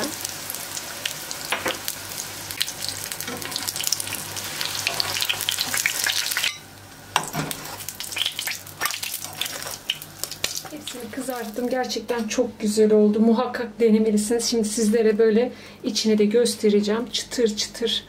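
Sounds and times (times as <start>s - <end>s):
oil sizzling and popping in a pan: 0.0s - 11.9s.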